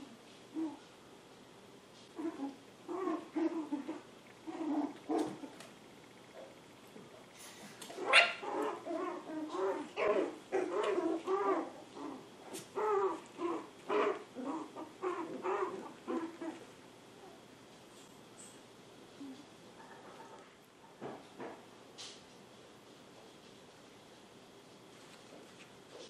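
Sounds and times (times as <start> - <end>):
puppy yapping and whining: 2.2 - 5.6, 7.9 - 16.7.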